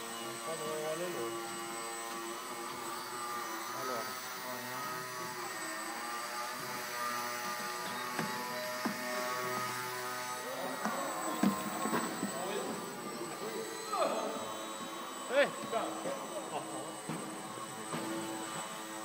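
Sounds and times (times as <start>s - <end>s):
model helicopter whine: 0.0s - 19.0s
model plane propeller whining: 0.0s - 19.0s.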